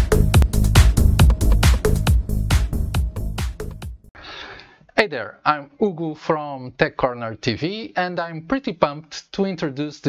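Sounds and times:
electronic dance music: 0.0s - 3.8s.

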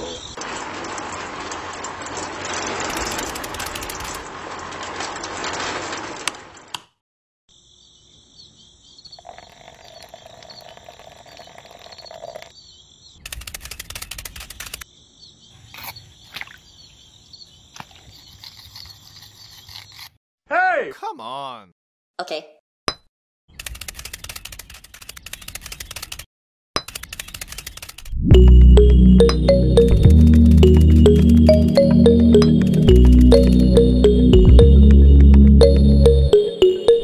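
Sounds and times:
insect chirps: 7.5s - 20.1s
frogs and insects chorus: 7.6s - 13.2s.

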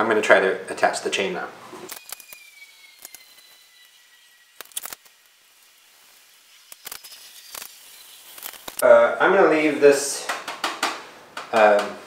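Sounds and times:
bicycle chain metallic clicks: 1.9s - 5.2s, 6.6s - 8.8s.

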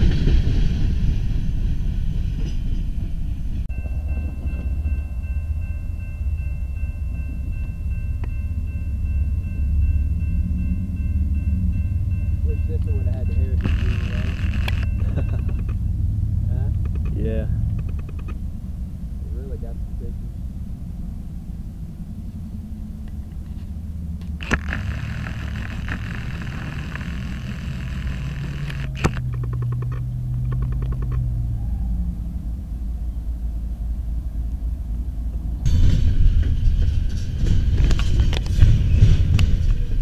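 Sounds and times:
train wheels rolling past: 0.0s - 17.9s, 35.0s - 40.0s
diesel locomotive rumbling: 0.0s - 40.0s
steady pitched tone: 3.6s - 17.6s, 23.8s - 29.2s.

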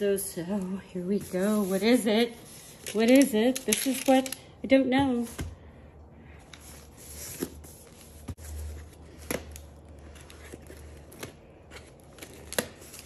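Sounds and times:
cardboard package scraping and rustling: 6.5s - 13.0s.

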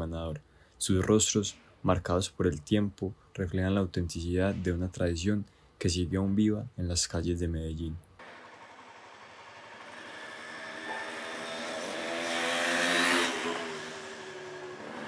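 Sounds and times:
engine hum: 8.2s - 15.0s
vehicle passing: 9.9s - 15.0s.

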